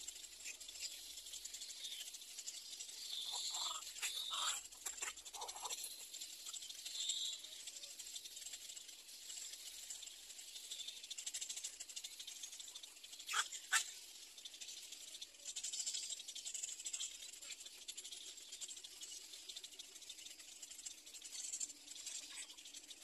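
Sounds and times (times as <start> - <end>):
sharp bird calls: 3.0 - 5.7, 13.3 - 13.9
egret chicks chattering: 3.0 - 6.0, 13.3 - 13.9.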